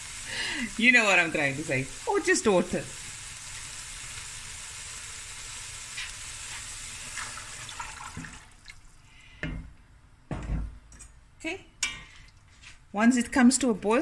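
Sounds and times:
broth pouring into pot: 0.0 - 9.0.

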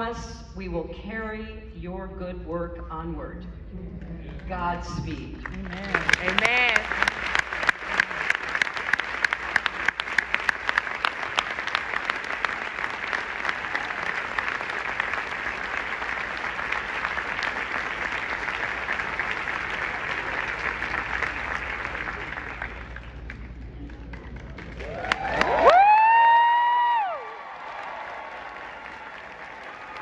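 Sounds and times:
audience applauding: 5.4 - 30.0
sharp close hand claps: 5.7 - 30.0.

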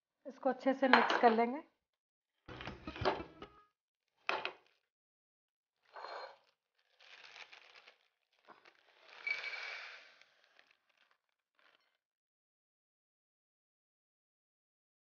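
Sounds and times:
kitchen paper crumpling: 6.8 - 11.9.

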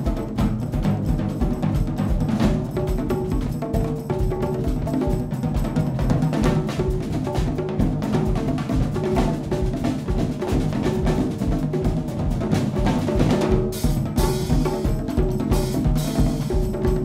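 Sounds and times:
busy drum strokes: 0.0 - 17.0
cymbals: 0.0 - 17.0.

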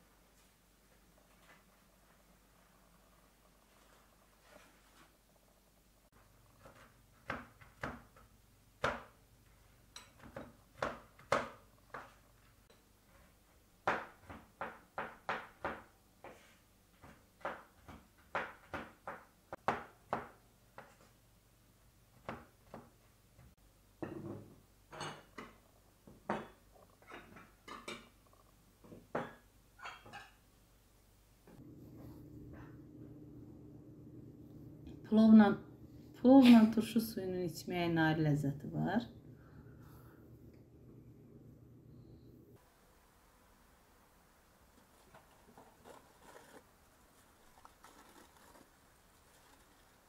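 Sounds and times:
plates set down on table: 24.0 - 28.1.

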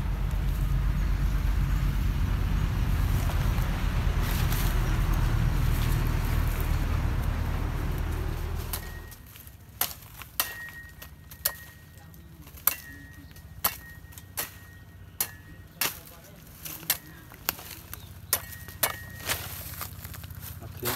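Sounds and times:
loud low rumble: 0.0 - 9.2
cleaver chopping coconut stalks: 8.1 - 20.2.

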